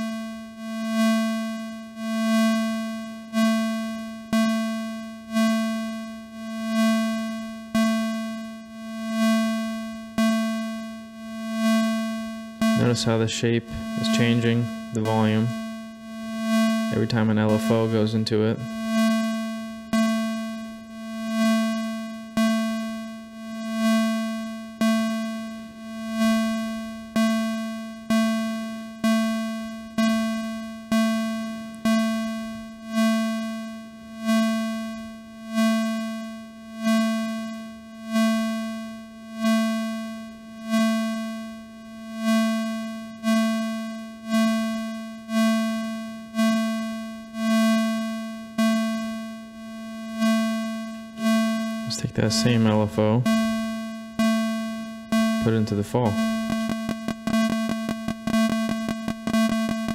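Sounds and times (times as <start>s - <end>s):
synthesizer note: 55.4s - 59.9s.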